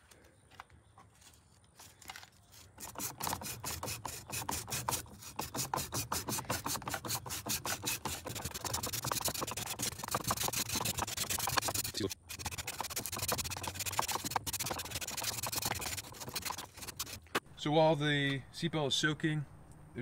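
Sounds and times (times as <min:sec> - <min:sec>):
sandpaper rasping on plastic: 0:02.5 - 0:17.4.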